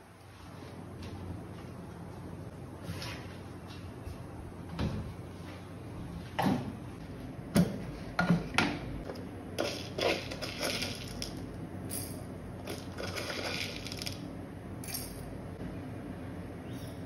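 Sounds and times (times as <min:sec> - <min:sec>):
peppercorns rattling in steel jar: 0:09.6 - 0:15.3.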